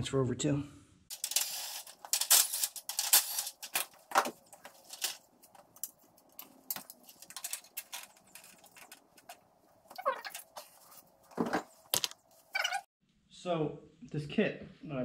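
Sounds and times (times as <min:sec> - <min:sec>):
metal clips clinking on plastic: 0:02.1 - 0:09.4.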